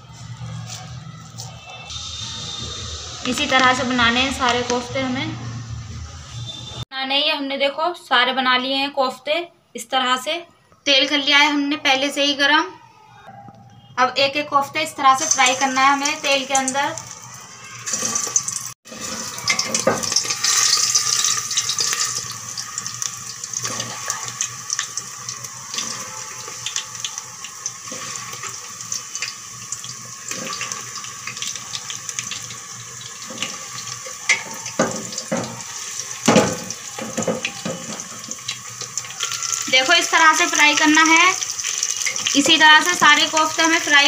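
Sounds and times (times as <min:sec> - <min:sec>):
meatballs sizzling in hot oil: 0:15.1 - 0:44.0
oil crackling and popping: 0:15.2 - 0:44.0.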